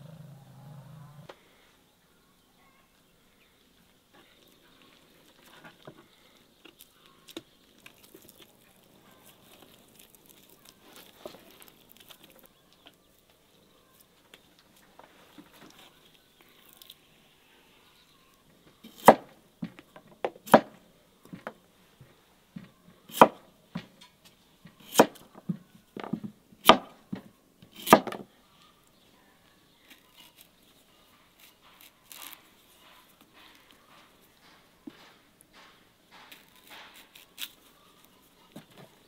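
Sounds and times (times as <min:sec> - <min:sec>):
faint handling sounds: 0:03.7 - 0:18.9, 0:28.5 - 0:39.0
knife chopping on wooden board: 0:20.5 - 0:20.8, 0:23.1 - 0:23.4, 0:27.8 - 0:28.2.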